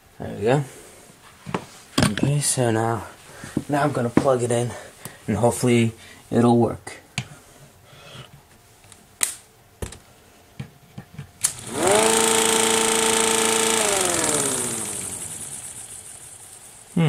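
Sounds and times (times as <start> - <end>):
electric siren winding: 11.4 - 16.8.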